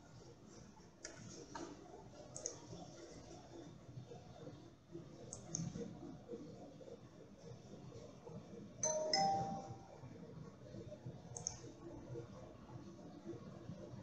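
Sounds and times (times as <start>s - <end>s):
computer mouse click: 2.4s - 2.6s, 5.3s - 5.8s, 11.3s - 11.7s
two-note electronic chime: 8.8s - 9.9s.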